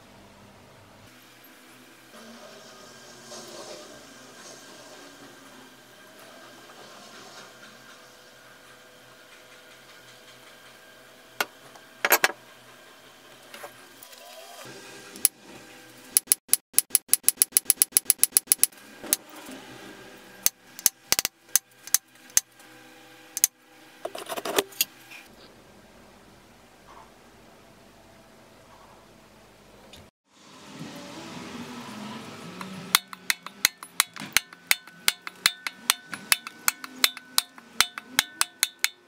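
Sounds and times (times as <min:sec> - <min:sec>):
hammer striking metal punches: 0:32.6 - 0:39.0.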